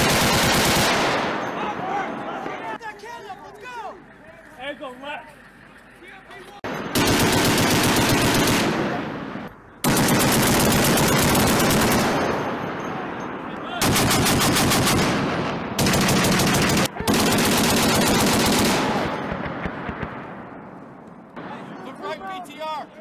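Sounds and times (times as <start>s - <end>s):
heavy machine gun bursts: 0.0s - 1.6s, 6.6s - 12.7s, 13.8s - 15.2s, 15.8s - 19.4s.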